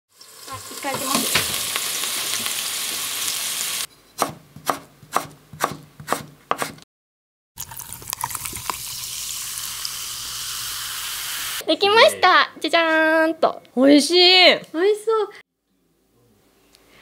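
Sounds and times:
patties sizzling in a frying pan: 0.1s - 3.9s, 8.7s - 11.6s
knife chopping on cutting board: 4.2s - 6.8s
cola pouring and fizzing: 7.6s - 11.3s.

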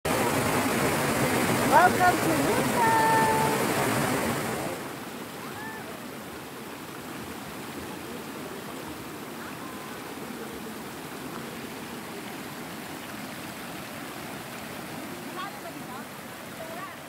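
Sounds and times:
water rushing over rocks: 0.1s - 17.0s.

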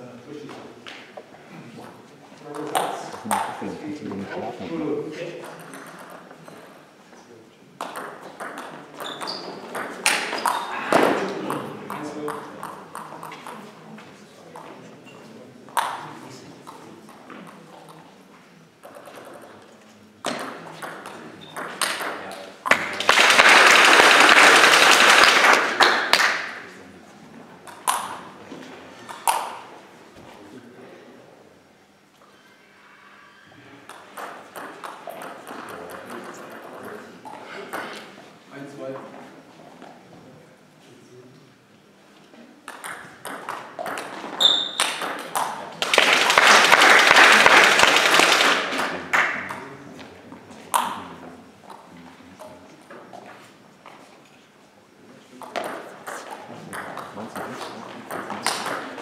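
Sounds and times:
table tennis ball taps: 7.8s - 10.7s
spectators clapping: 22.7s - 26.8s, 44.8s - 49.7s.

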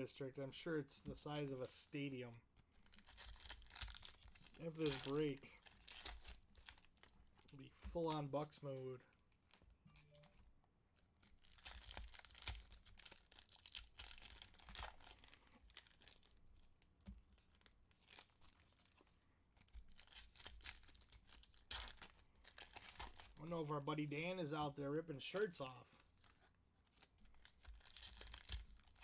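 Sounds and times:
foil wrapper crinkling: 2.8s - 8.2s, 11.2s - 19.0s, 19.6s - 23.4s, 25.3s - 29.0s.

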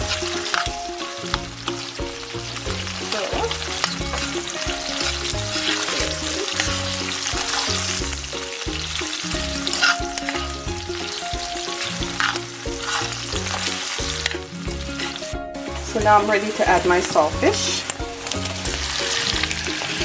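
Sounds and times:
utensil stirring in pan: 0.0s - 20.0s
vegetables sizzling in a frying pan: 0.0s - 20.0s.

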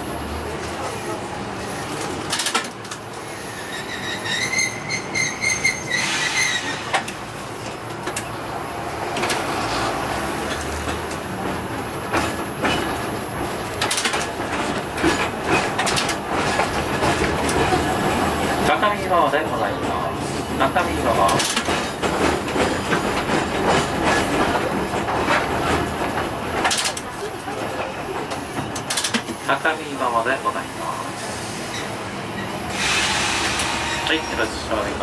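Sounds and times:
streetcar rolling rumble: 0.0s - 35.0s
high wheel squeal: 3.2s - 7.0s, 31.2s - 34.6s.

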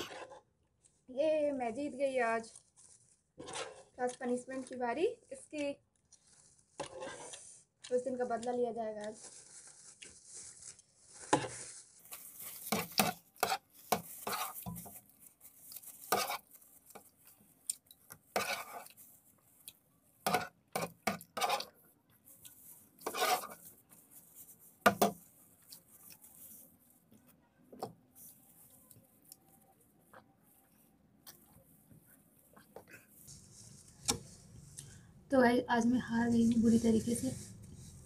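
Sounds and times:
metal spoon scraping a plate: 18.3s - 19.0s, 23.0s - 23.7s.

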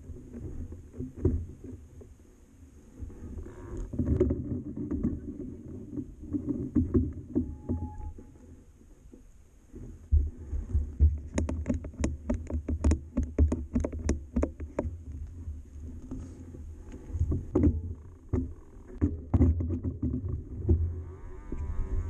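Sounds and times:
low rumble: 15.4s - 22.0s.

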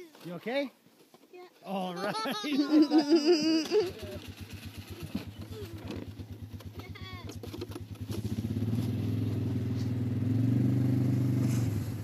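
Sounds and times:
small vehicle engine puttering: 2.7s - 12.0s.

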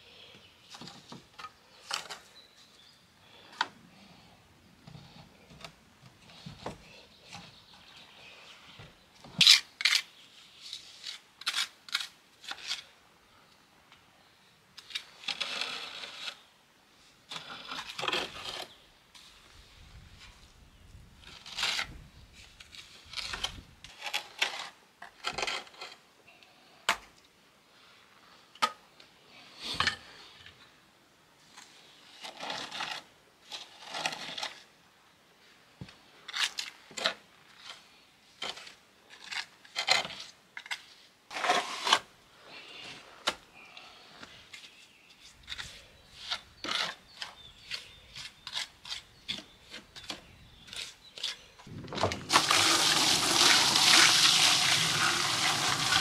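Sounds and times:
trowel scraping mortar: 14.8s - 16.5s, 17.3s - 19.3s, 21.2s - 26.0s, 32.2s - 34.7s, 36.3s - 42.1s, 45.3s - 51.6s, 52.2s - 56.0s.

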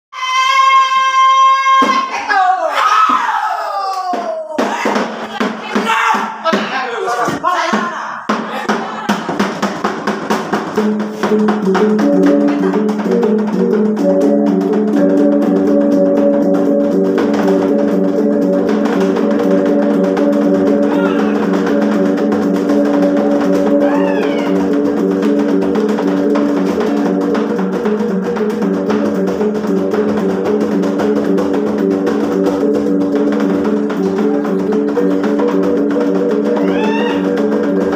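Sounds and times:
high shout: 0.1s - 9.0s, 20.8s - 21.4s, 23.8s - 24.6s, 36.6s - 37.3s
wooden hand drums: 4.0s - 6.7s, 7.3s - 37.9s.

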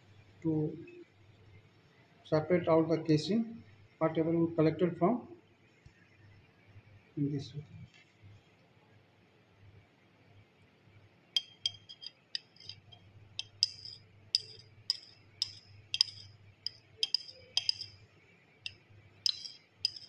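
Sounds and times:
glass beaker clinking against glass: 11.4s - 18.0s, 18.7s - 20.0s.

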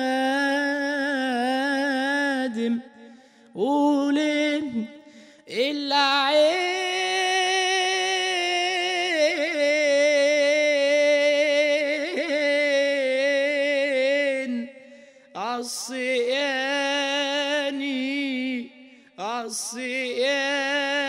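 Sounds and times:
man singing unaccompanied: 0.0s - 21.0s.

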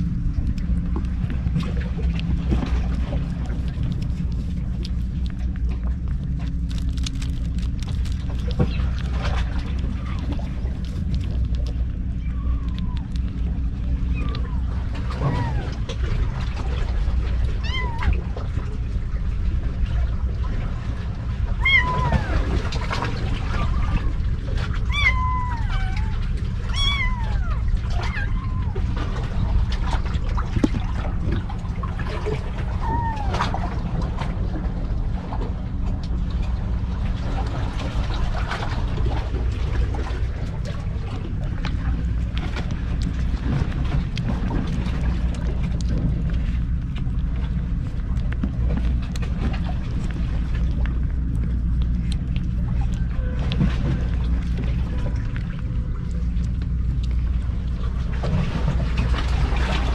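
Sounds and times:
low rumble: 0.0s - 59.9s
kittens meowing: 11.4s - 16.0s, 17.5s - 18.4s, 21.5s - 29.0s, 32.6s - 33.7s.

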